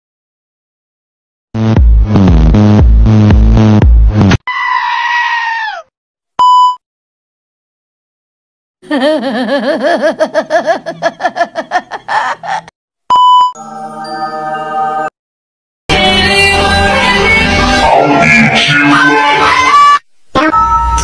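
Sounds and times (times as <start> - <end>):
bass-heavy music: 1.6 - 4.4, 15.9 - 19.7, 20.4 - 21.0
wavering scream: 4.5 - 5.9
brief beep: 6.4 - 6.8, 13.1 - 13.6.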